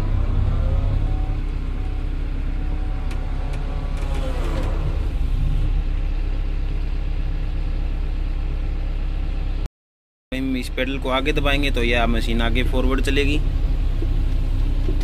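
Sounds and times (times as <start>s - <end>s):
hydraulic whine: 0.0s - 7.4s
excavator diesel engine running: 0.0s - 9.6s, 10.5s - 15.0s.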